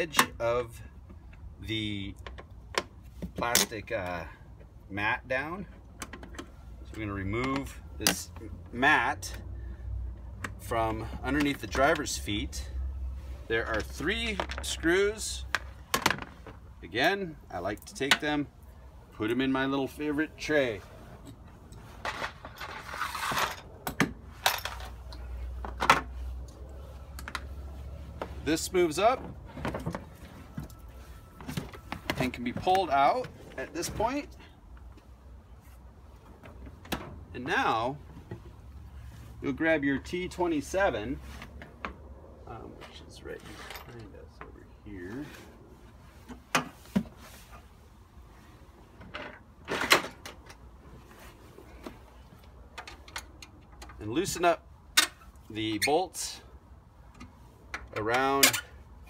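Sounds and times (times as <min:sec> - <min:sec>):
rustle: 0:13.1 - 0:54.4.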